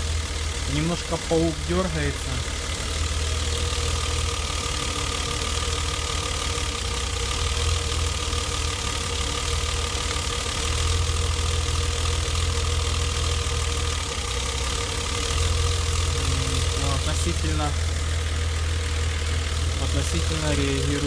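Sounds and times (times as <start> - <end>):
car engine idling: 0.0 - 21.0.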